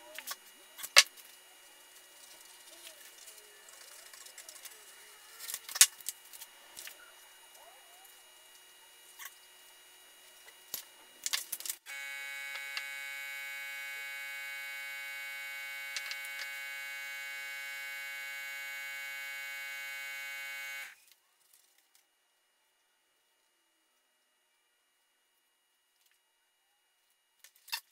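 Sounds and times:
electric buzz: 0.0 - 21.0.

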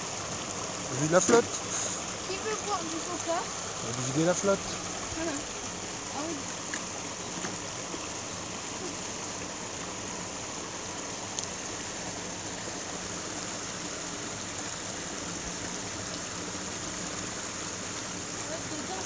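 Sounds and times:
stream flowing: 0.0 - 19.0.

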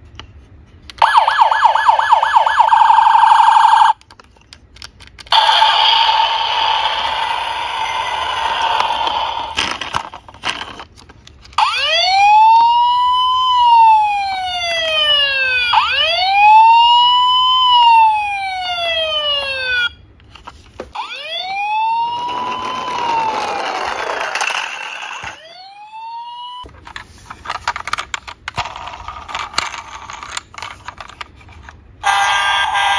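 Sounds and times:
toy electronic siren wailing: 1.0 - 4.0, 5.3 - 9.5, 11.6 - 20.0, 21.0 - 26.6, 32.0 - 32.9
plastic handling clicks: 4.0 - 5.3.

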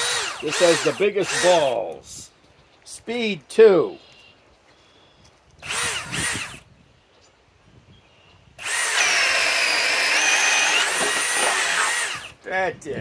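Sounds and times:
drill boring through wood: 0.0 - 1.8, 5.6 - 6.7, 8.6 - 12.4
cordless drill motor revving: 0.0 - 1.9, 5.6 - 6.7, 8.6 - 12.4.

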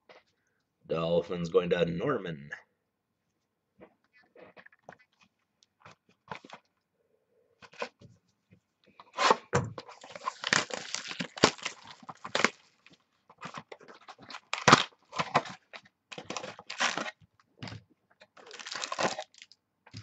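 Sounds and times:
plastic shrink-wrap tearing and crinkling: 9.2 - 17.2, 18.3 - 19.6.

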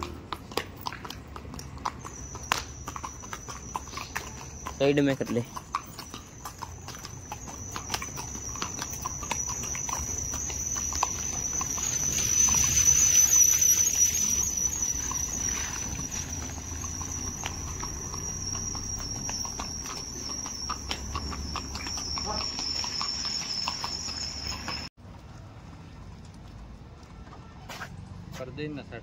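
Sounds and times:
horse hooves clip-clopping on road: 0.0 - 28.0
high-pitched insect drone: 2.0 - 24.9.

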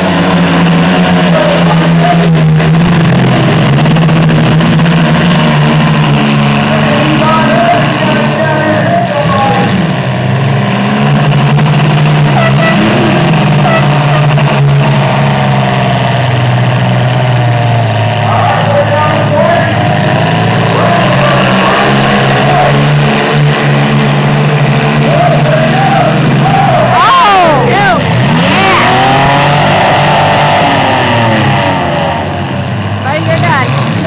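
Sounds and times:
truck engines revving: 0.0 - 34.0.

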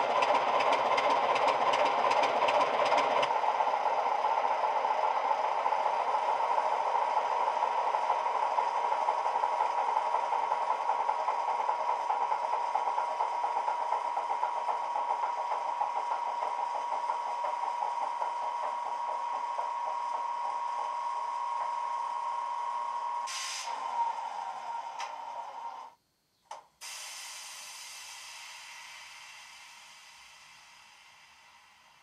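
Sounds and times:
air hiss: 23.3 - 24.0, 26.7 - 32.0.

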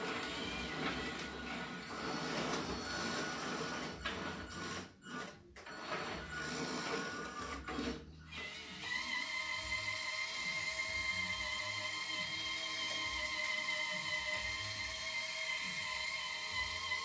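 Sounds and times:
hydraulic pump whirring and hissing: 0.0 - 17.0
music: 4.8 - 17.0.

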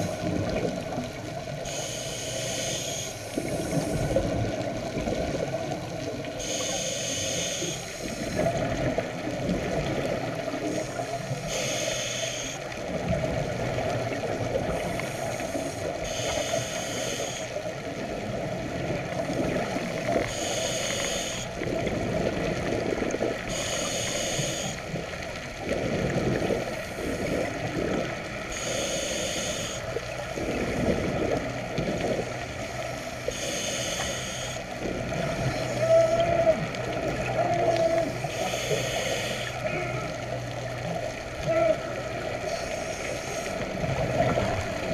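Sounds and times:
exhaled bubbles gurgling: 0.0 - 44.9
regulator hissing inhale: 1.6 - 4.2, 6.4 - 8.4, 10.6 - 12.6, 14.7 - 17.7, 20.2 - 21.6, 23.5 - 24.9, 28.5 - 30.8, 33.0 - 34.8, 38.2 - 39.7, 42.5 - 43.7.

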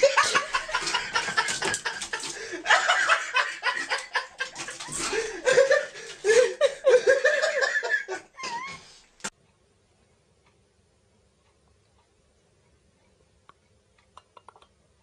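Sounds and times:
person laughing hard: 0.0 - 8.9.

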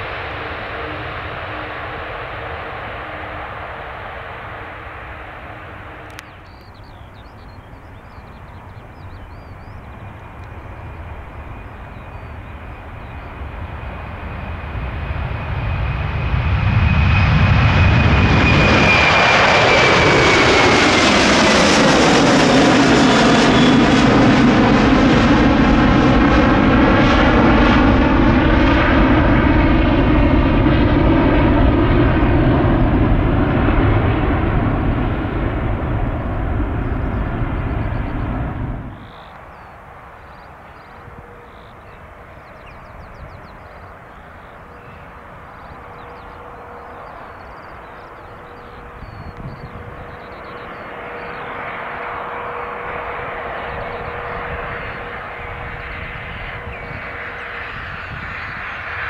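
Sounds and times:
high engine whine: 0.0 - 59.0
jet airliner passing: 0.0 - 59.0
loud phasing rumble: 16.3 - 39.2.

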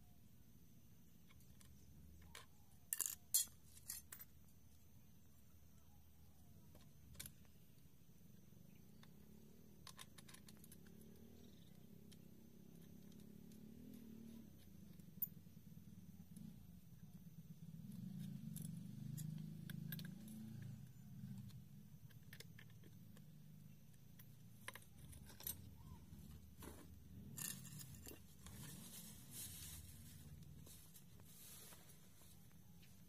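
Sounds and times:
light metal scrapes: 26.6 - 32.5.

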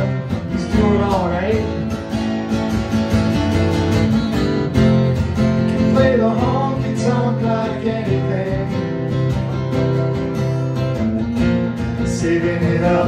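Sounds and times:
acoustic guitars playing: 0.0 - 13.0.

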